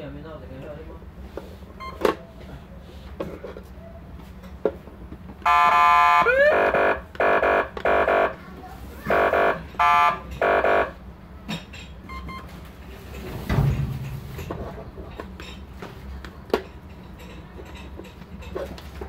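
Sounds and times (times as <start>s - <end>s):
short electronic siren beeps: 5.5s - 8.4s, 9.1s - 11.0s.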